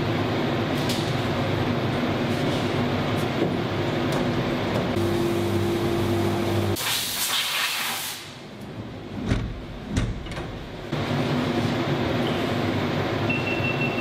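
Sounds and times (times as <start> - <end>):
machine hum: 0.0 - 6.8
sliding door thumps: 9.2 - 10.6.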